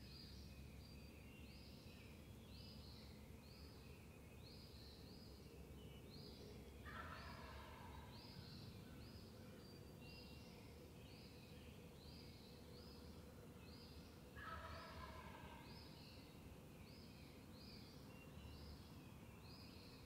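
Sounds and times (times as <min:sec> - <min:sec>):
turkey gobbling: 0:06.9 - 0:07.9, 0:14.4 - 0:15.6.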